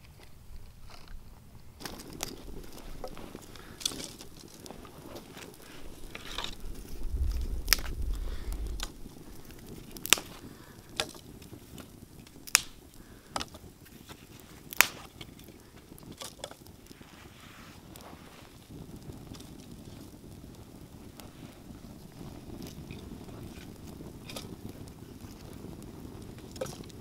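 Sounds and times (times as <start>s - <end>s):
twig fire crackling and popping: 0.0s - 27.0s
wind rumble on microphone: 4.2s - 12.1s.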